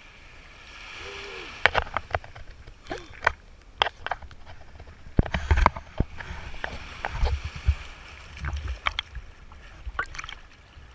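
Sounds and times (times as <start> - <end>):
sea water sloshing and splashing: 0.0 - 10.9.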